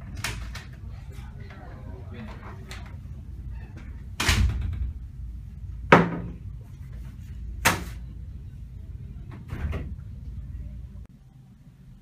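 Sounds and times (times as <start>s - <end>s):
door shutting: 3.5s - 5.0s, 9.3s - 10.1s.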